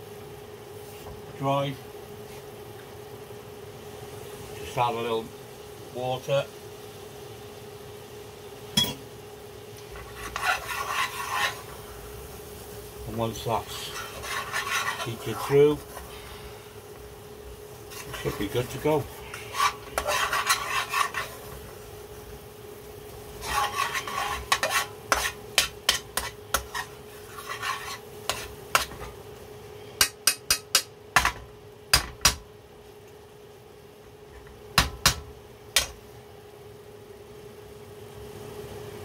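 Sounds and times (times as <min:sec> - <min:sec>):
faint hum: 0:00.0 - 0:39.0
spoon stirring sauce in pan: 0:09.8 - 0:11.8, 0:13.6 - 0:16.1, 0:17.8 - 0:21.8, 0:23.3 - 0:29.2.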